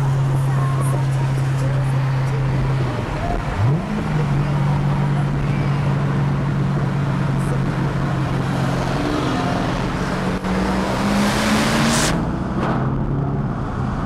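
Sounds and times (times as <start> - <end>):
car engines accelerating: 0.0 - 14.0.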